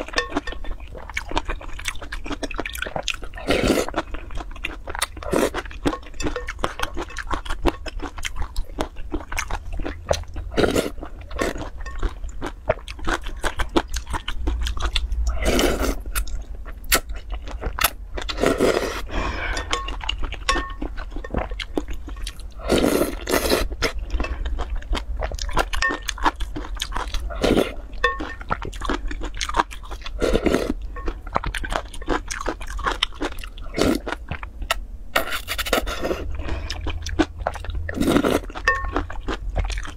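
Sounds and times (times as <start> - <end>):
wet chewing: 0.0 - 39.9
slurping noodles: 18.3 - 19.7.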